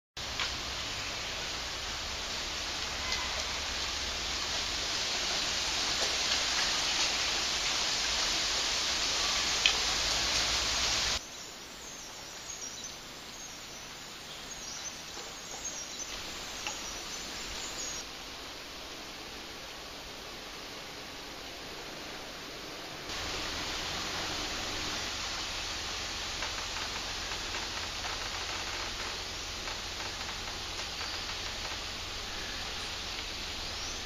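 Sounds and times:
forest ambience hiss: 0.2s - 34.0s
faint bird chirps: 2.9s - 3.6s.

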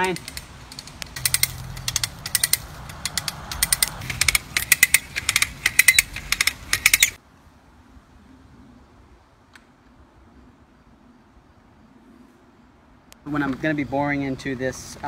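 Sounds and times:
ratcheting pulley clicking: 0.0s - 7.2s.

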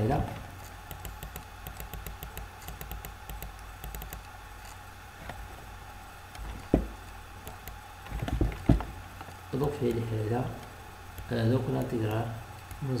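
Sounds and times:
low steady hum: 0.0s - 13.0s
stylus clicking on tablet: 0.7s - 4.8s
dull thump: 6.6s - 7.0s, 8.1s - 9.0s.

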